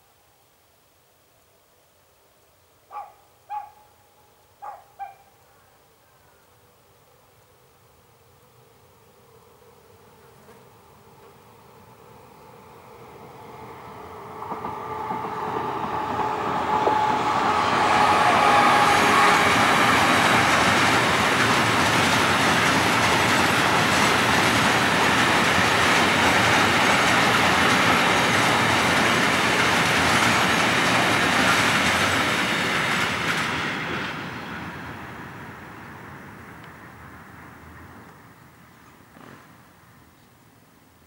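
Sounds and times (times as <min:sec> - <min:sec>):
freight train passing: 0:10.8 - 0:40.1
train wheels on rails: 0:12.8 - 0:39.9.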